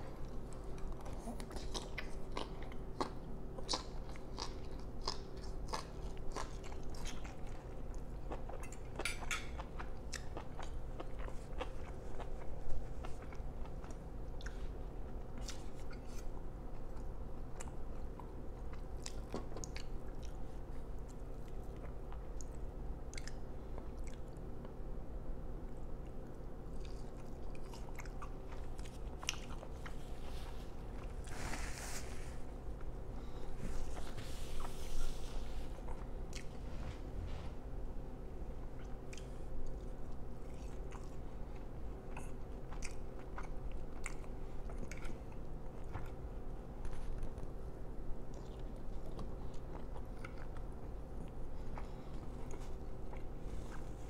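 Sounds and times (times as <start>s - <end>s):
faint steady hum: 0.0s - 54.0s
chewing and biting food: 0.2s - 24.8s, 26.0s - 31.3s, 38.6s - 54.0s.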